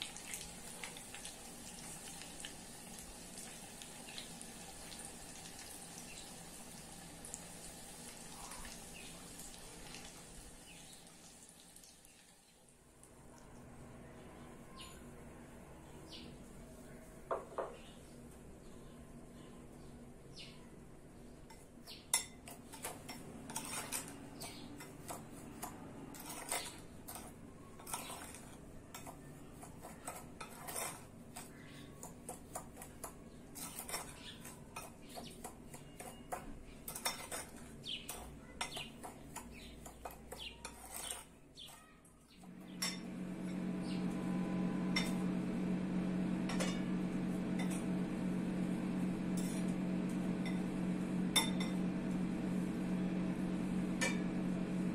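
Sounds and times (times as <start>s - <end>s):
low hum: 42.5s - 54.9s.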